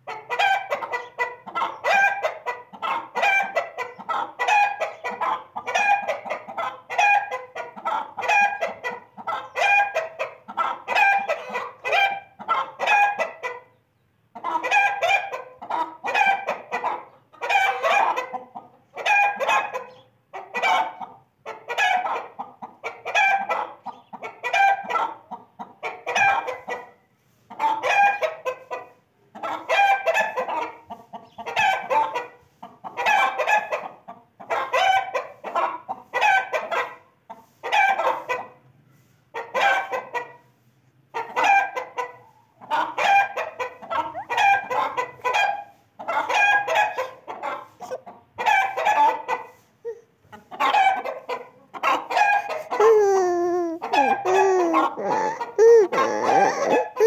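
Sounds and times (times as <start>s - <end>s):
chicken calling: 0.0s - 13.6s, 41.2s - 57.0s.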